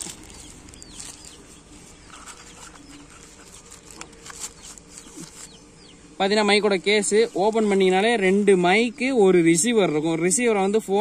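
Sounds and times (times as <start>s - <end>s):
tissue paper crinkling: 0.0s - 5.5s
faint bird chirps: 0.0s - 6.6s.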